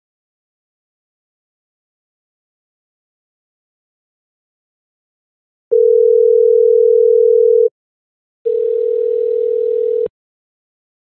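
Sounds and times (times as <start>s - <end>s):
telephone ringback tone: 5.7s - 7.7s, 8.5s - 10.1s.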